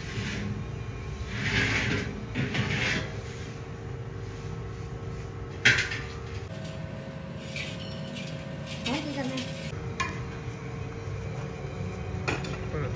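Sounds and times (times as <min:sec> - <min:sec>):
metal scrapes: 0:00.0 - 0:05.4, 0:06.3 - 0:09.8.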